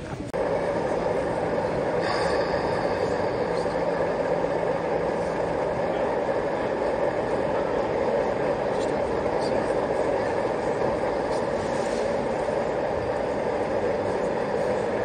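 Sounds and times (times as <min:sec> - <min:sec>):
model locomotive running sound: 0:00.0 - 0:15.0.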